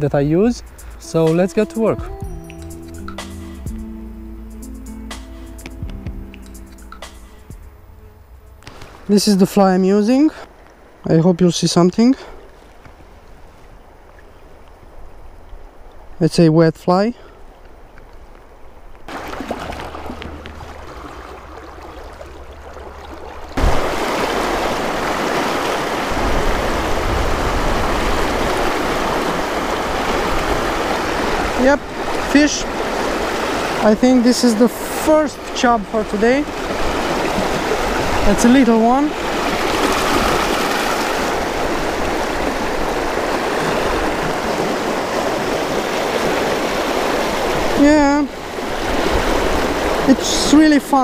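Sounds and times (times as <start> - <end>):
river water rushing over stones: 19.1 - 51.0.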